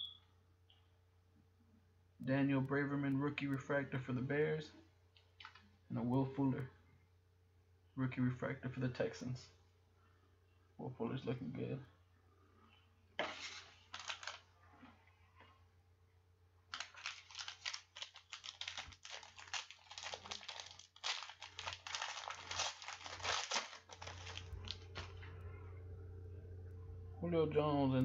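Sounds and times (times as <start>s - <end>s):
foil wrapper tearing and crinkling: 13.2s - 14.5s, 16.7s - 25.1s.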